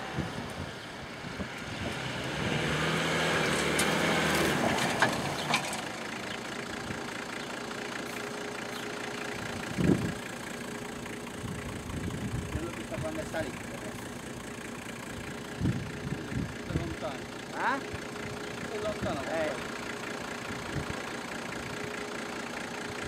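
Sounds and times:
engine revving: 0:00.0 - 0:23.0.

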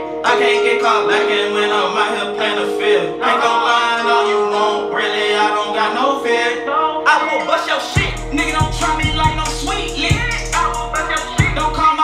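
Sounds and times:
man singing melodically: 0:00.0 - 0:12.0
synth chords and beat: 0:07.0 - 0:12.0.

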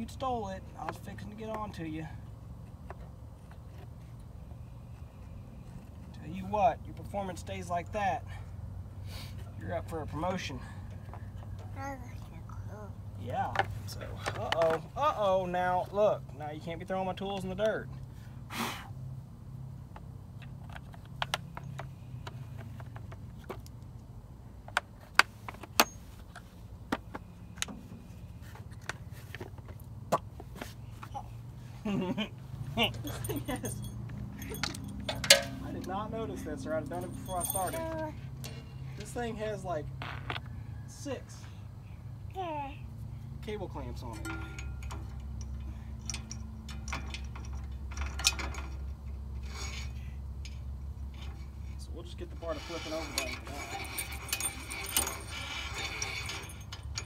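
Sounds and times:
low steady hum: 0:00.0 - 0:57.0
tools clinking on steel frame: 0:32.8 - 0:39.3, 0:44.0 - 0:57.0.

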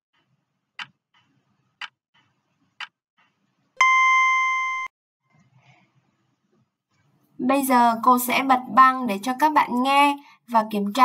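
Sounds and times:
electronic beep: 0:03.8 - 0:04.9.

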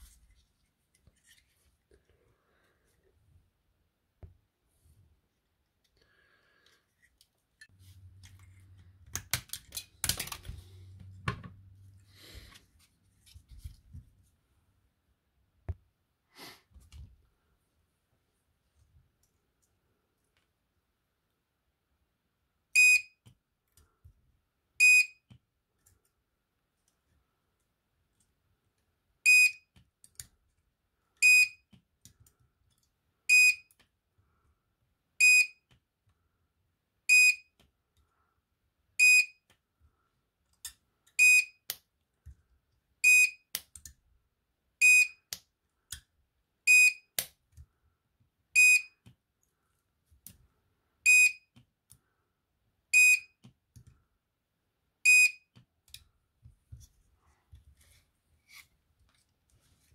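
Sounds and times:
clicks of wire being handled: 0:06.6 - 0:11.6.

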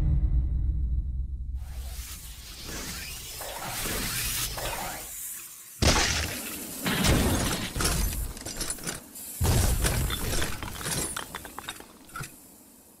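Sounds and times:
small clinks of falling pieces: 0:09.8 - 0:12.4.

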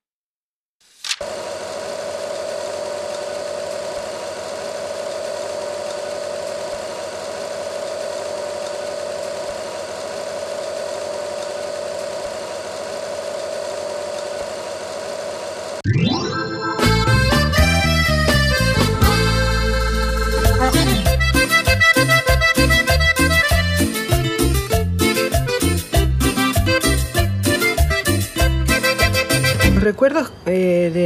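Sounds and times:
machine drone with hiss: 0:01.1 - 0:15.8.

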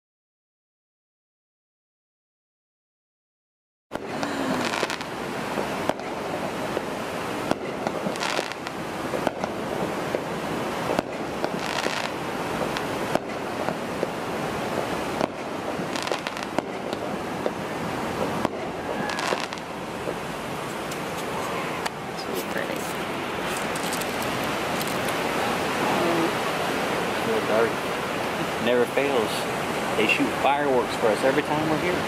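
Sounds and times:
fireworks banging: 0:04.0 - 0:25.4
fireworks crackling: 0:04.0 - 0:31.0
surf washing: 0:04.0 - 0:32.0.

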